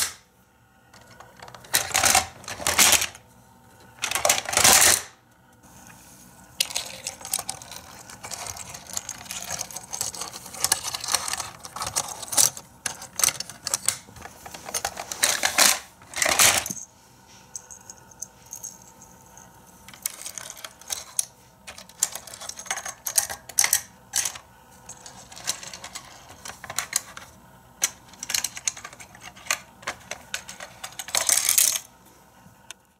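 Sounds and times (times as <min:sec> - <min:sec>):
plastic toy clicks and clatters: 0:06.6 - 0:14.0, 0:19.9 - 0:31.9.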